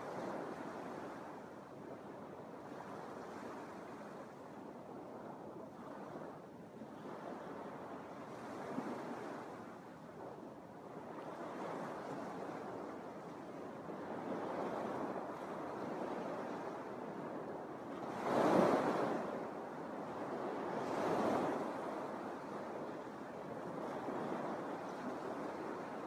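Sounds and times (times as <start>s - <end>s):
waves washing onto beach: 0.0s - 26.0s.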